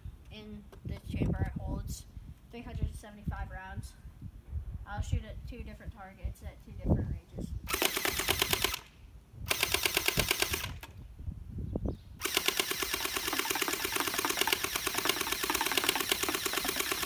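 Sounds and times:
gel blaster firing full auto: 0:07.7 - 0:08.9, 0:09.5 - 0:10.9, 0:12.2 - 0:17.0.

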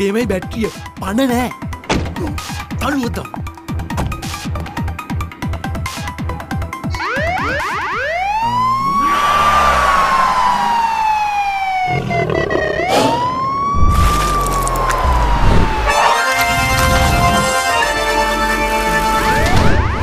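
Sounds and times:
siren wailing: 0:06.8 - 0:20.0
low rumble: 0:13.8 - 0:16.0.

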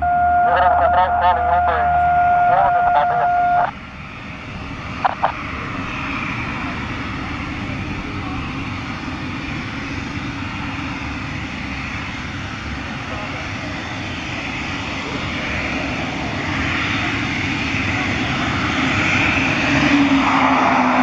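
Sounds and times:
loud steady tone: 0:00.0 - 0:03.8, 0:05.0 - 0:05.4
turboprop engines running: 0:00.0 - 0:21.0
person speaking: 0:00.4 - 0:03.7.

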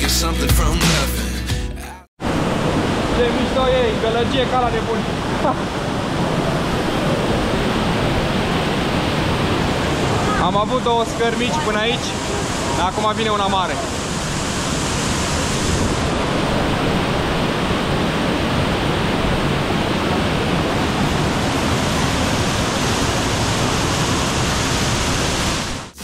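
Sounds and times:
stream rushing water: 0:02.2 - 0:26.0.

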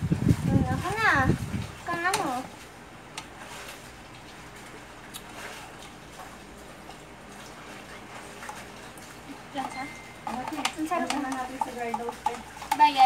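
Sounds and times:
kitchen utensils clicking: 0:09.6 - 0:13.0.

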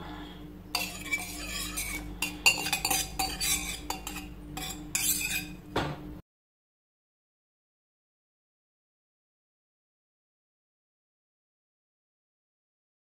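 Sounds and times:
whisk scraping metal bowl: 0:00.7 - 0:05.7.

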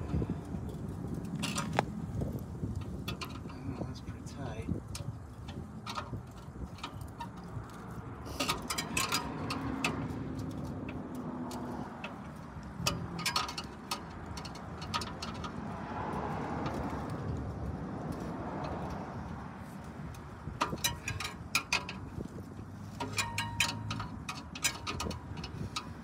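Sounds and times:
hand tools clicking and scraping: 0:00.0 - 0:26.0.

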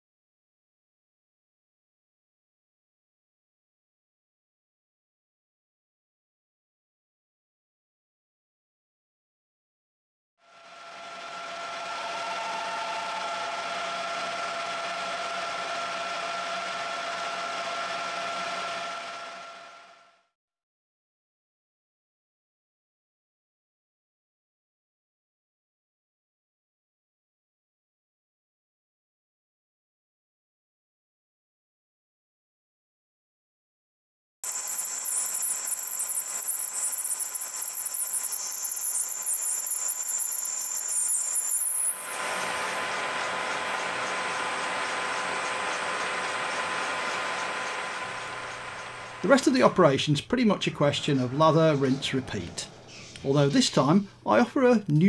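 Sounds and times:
lathe whine: 0:10.4 - 0:20.2, 0:34.4 - 0:53.6
cutting hiss: 0:34.5 - 0:49.5.

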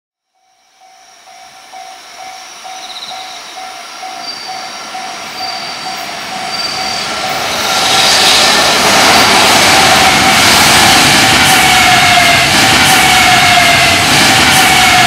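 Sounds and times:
electric freight train rumble: 0:00.3 - 0:15.0
repeating ringing tone: 0:00.4 - 0:07.8.

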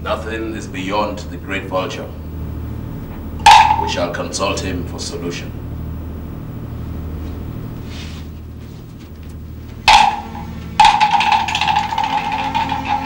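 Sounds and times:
low hum: 0:00.0 - 0:13.0
loud music stab: 0:02.6 - 0:05.0, 0:09.8 - 0:13.0.

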